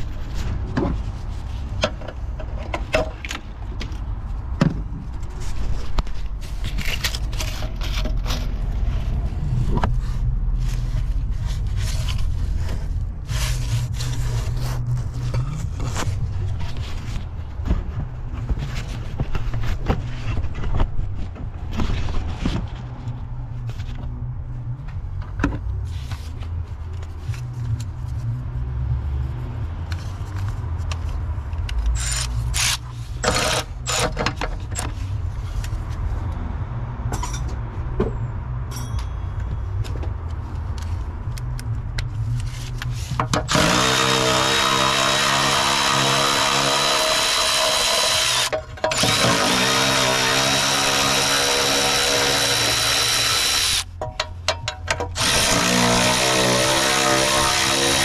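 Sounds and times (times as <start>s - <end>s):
cordless electric ratchet motor: 32.0s - 34.1s, 43.5s - 53.8s, 55.2s - 58.0s.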